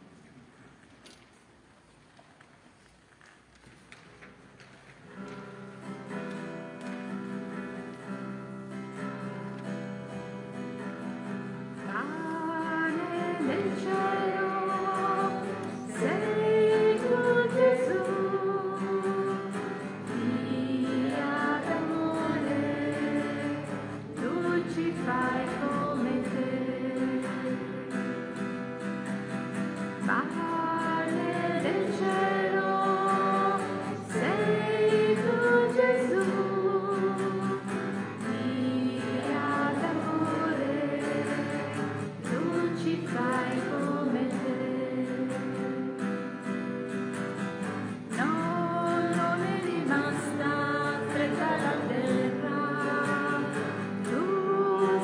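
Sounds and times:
voices singing a hymn: 0:11.9 - 0:46.3, 0:48.1 - 0:55.0.

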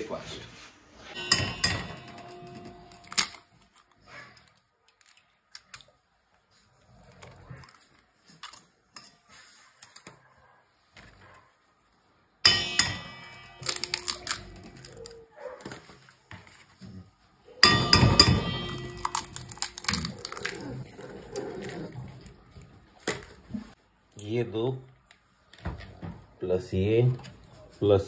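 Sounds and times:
eggs cracking on a metal bowl: 0:01.2 - 0:03.5, 0:12.5 - 0:15.8, 0:17.6 - 0:23.5.

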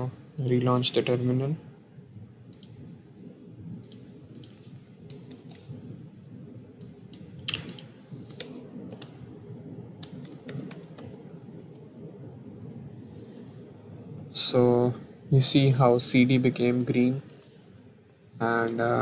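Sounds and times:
low hum: 0:00.0 - 0:19.0
keyboard typing: 0:00.4 - 0:00.7, 0:02.5 - 0:02.8, 0:03.8 - 0:05.7, 0:06.8 - 0:11.8.

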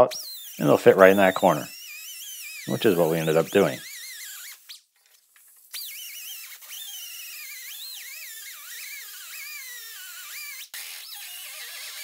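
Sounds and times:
die grinder cutting steel: 0:00.2 - 0:04.4.

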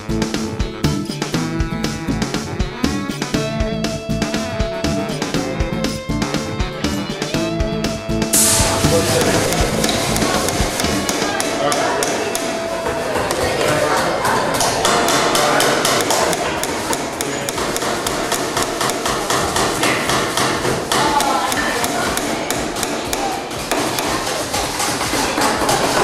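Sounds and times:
workshop chatter: 0:04.2 - 0:26.0
hammers striking nails: 0:09.0 - 0:12.5, 0:14.6 - 0:26.0.

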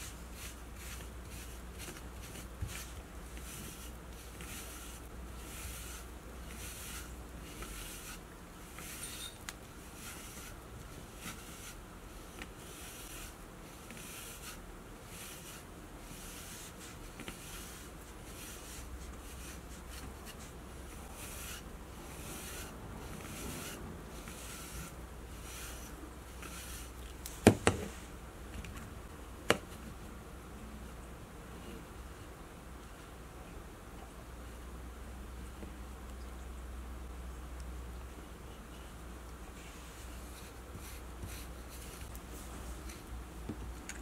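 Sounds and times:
brush swishing through fur: 0:00.0 - 0:27.2, 0:39.5 - 0:43.1.

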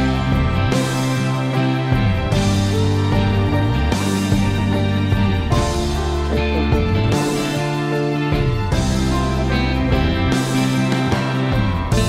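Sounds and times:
instrumental melody: 0:00.0 - 0:12.0
held low bass note: 0:01.9 - 0:07.6.

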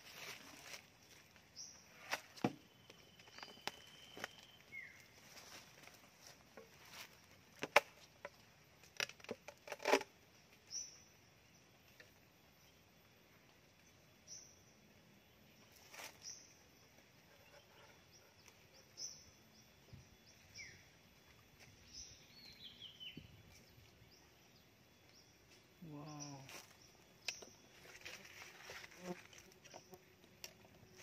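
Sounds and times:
small birds chirping: 0:00.1 - 0:07.4, 0:10.3 - 0:31.0.

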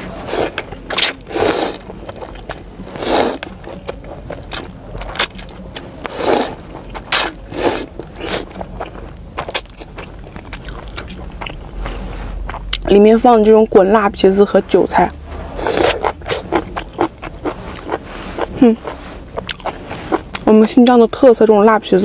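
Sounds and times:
person slurping noodles: 0:00.0 - 0:03.5, 0:06.0 - 0:08.6, 0:15.3 - 0:20.4
person chewing: 0:00.0 - 0:12.9, 0:15.1 - 0:20.5.

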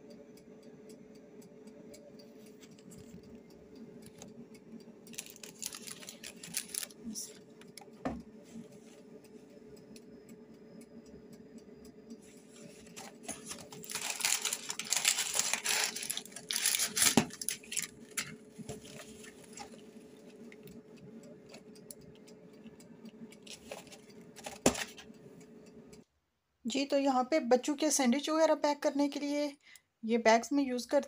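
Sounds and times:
scattered clicks: 0:00.0 - 0:26.1
steady low hum: 0:00.0 - 0:26.1
paper and cardboard rustling: 0:05.1 - 0:06.9, 0:12.9 - 0:19.8, 0:23.5 - 0:25.0.

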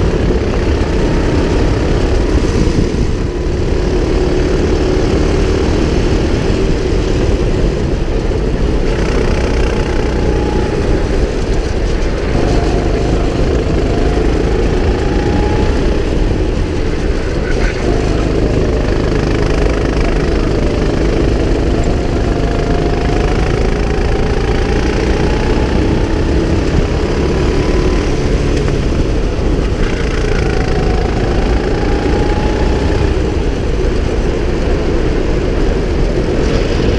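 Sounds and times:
go-kart engine running hard: 0:00.0 - 0:36.9.

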